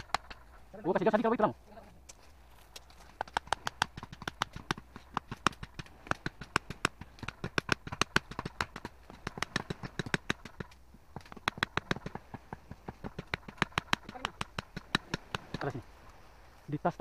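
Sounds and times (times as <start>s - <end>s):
rapid sharp clicks and knocks: 3.2s - 15.8s.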